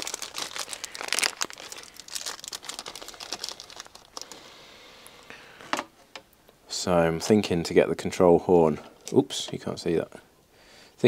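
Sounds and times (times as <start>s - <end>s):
plastic packet crackling: 0.0s - 4.4s.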